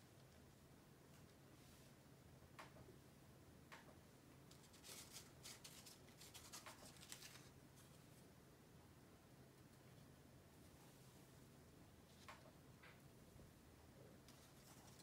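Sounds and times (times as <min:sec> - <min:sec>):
hand rummaging through cards: 0:04.6 - 0:08.0.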